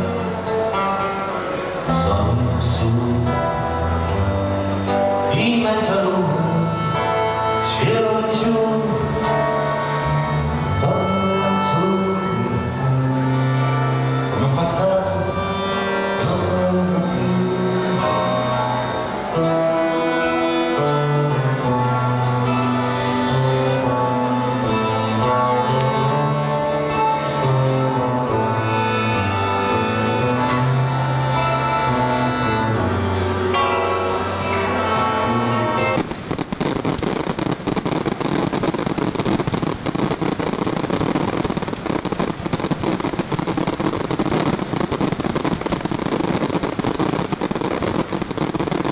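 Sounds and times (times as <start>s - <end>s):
acoustic folk band playing: 0.0s - 48.9s
fireworks crackling and popping: 30.2s - 48.9s.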